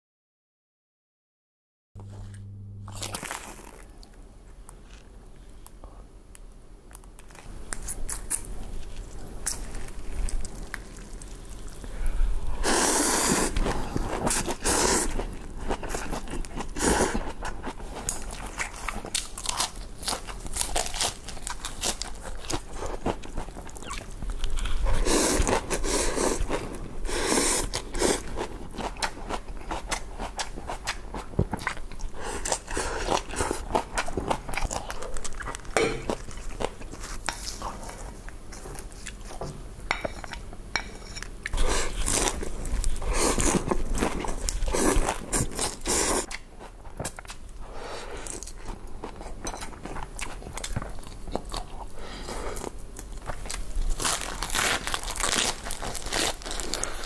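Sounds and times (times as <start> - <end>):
chewing and crunchy bites: 2.0 - 4.2, 13.4 - 26.8, 27.6 - 39.4, 48.2 - 52.0, 52.6 - 57.0
slurping noodles: 12.6 - 15.3.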